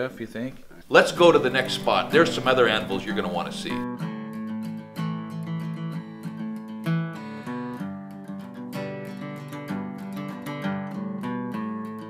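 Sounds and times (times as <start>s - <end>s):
acoustic guitar music: 0.0s - 12.0s.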